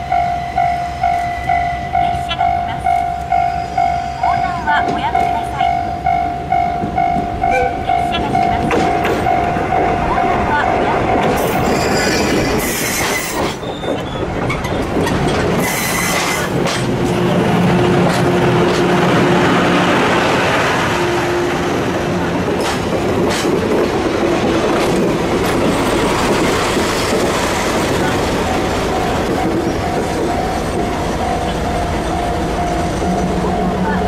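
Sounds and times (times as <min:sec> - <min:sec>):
diesel locomotive passing: 0:00.0 - 0:34.0
wheels squealing against rails: 0:07.4 - 0:16.8, 0:25.4 - 0:34.0
train wheels clacking over rail joints: 0:08.2 - 0:20.5, 0:22.2 - 0:34.0.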